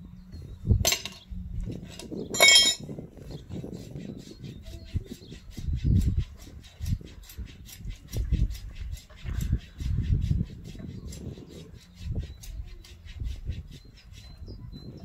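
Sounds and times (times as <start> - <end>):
metallic tool clink: 2.3 - 2.8.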